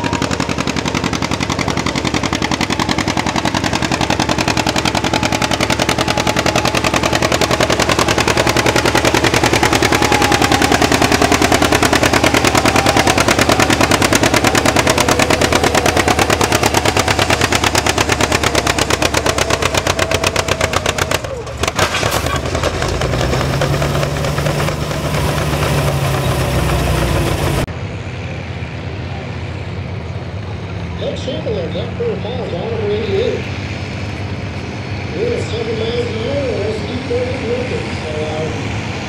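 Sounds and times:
tractor engine exhaust popping: 0.0s - 27.7s
tractor engine humming: 0.0s - 39.0s.

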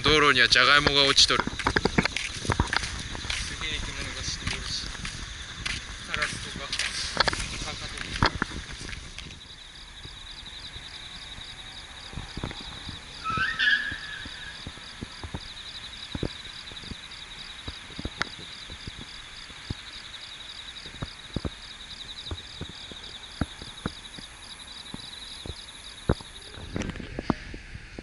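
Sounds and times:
insects chirping chorus: 0.0s - 28.0s
short rising squeak: 13.2s - 14.6s.

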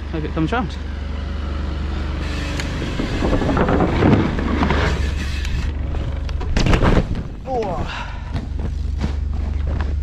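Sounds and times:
tyres rumbling over wooden boards: 2.8s - 7.5s.

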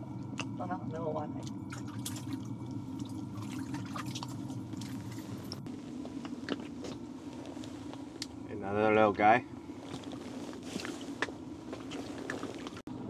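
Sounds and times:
steady low hum: 0.0s - 13.0s
rustles: 9.7s - 12.8s.

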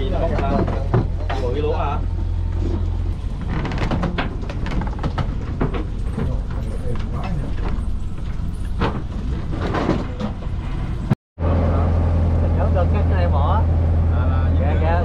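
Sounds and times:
boat engine humming: 0.0s - 15.0s
knocks and rattles: 0.3s - 11.2s.

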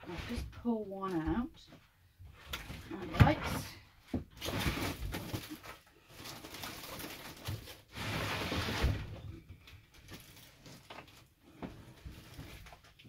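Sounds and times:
canvas scraping and rustling: 4.4s - 5.8s, 6.4s - 9.2s.

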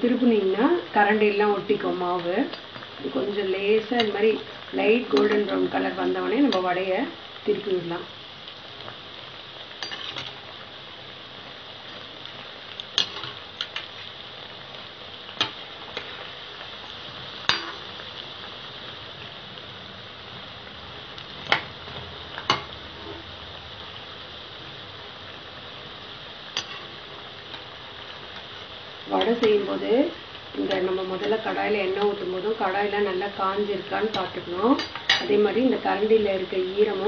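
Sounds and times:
oil sizzling: 0.0s - 37.0s
metal spoon clinking on pan: 9.8s - 10.3s, 17.5s - 17.8s, 34.1s - 35.3s.

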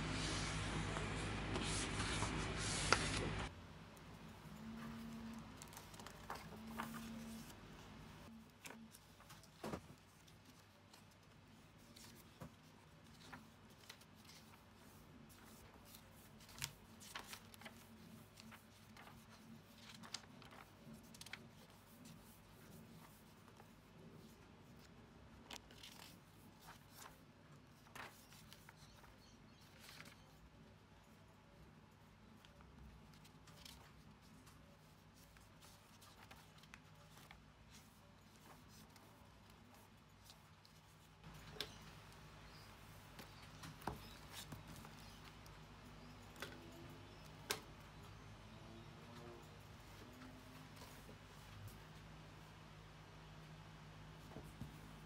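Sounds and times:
room hum: 0.0s - 55.0s
notebook pages turning: 0.4s - 3.5s, 4.6s - 7.6s, 8.3s - 24.4s, 25.4s - 27.2s, 27.8s - 30.4s, 32.4s - 45.4s.

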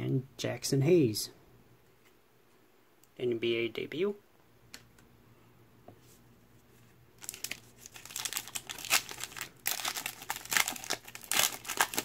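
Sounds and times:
foil wrapper crinkling and tearing: 7.2s - 12.0s.

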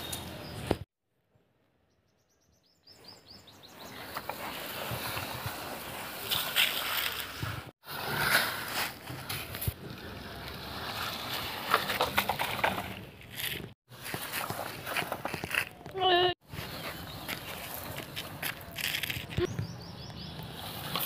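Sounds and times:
toy wheels crunching on gravel: 3.8s - 19.5s.

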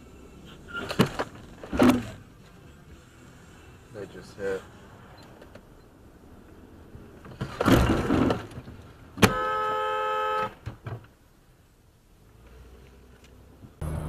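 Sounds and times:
car horn blast: 9.2s - 10.6s.

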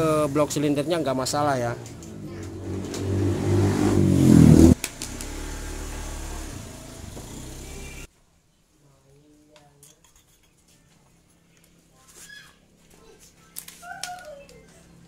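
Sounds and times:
vehicle engine revving: 0.0s - 8.1s.

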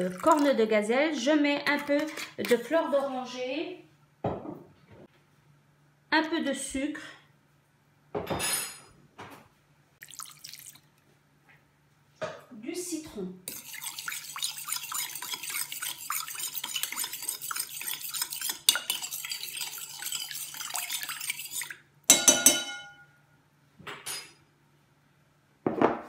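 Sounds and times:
spoon scraping glass bowl: 1.8s - 2.7s, 13.5s - 23.0s
ringing spoon clink: 22.1s - 23.1s.

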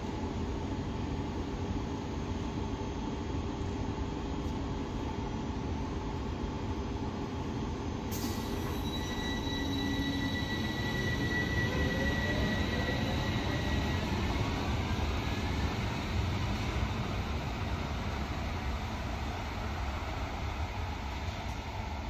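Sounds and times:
tram accelerating whine: 6.0s - 22.0s
high wheel squeal: 8.3s - 15.0s.

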